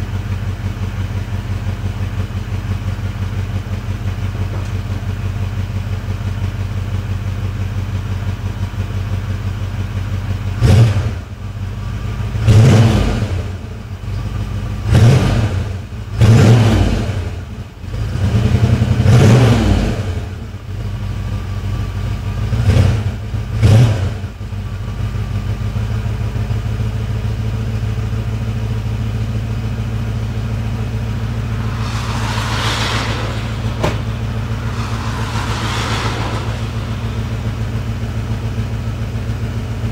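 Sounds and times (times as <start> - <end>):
car engine idling: 0.0 - 10.6, 29.5 - 39.9.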